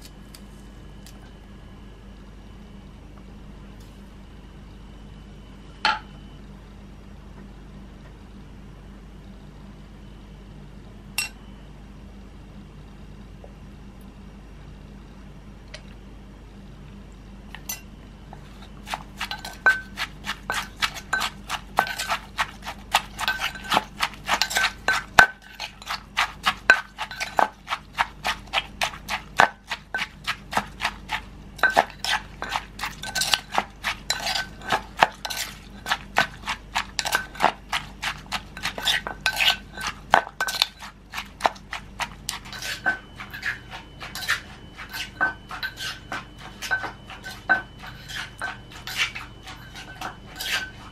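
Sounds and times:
metal spoon clinking on mortar: 11.2s - 11.4s, 17.6s - 17.9s, 18.9s - 50.9s
wooden pestle pounding in mortar: 18.9s - 45.0s.

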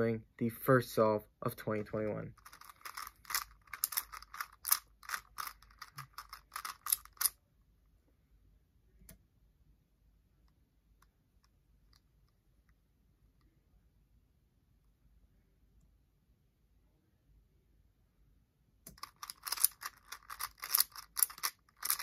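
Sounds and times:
puzzle cube plastic clicks: 2.4s - 7.4s, 18.9s - 22.0s.

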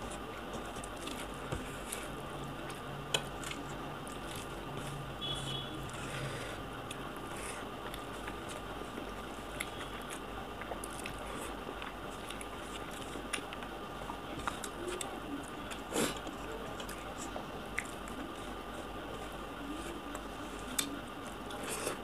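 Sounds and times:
chewing with wet clicks: 7.8s - 18.3s.

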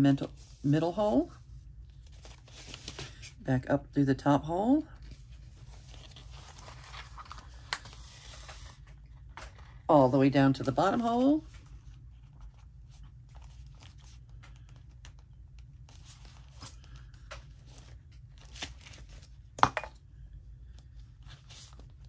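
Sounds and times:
paper rustling: 1.9s - 3.3s, 5.0s - 19.3s.

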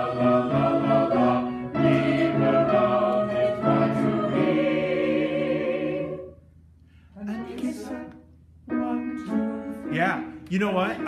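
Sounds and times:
choir singing held chords: 0.0s - 6.6s.

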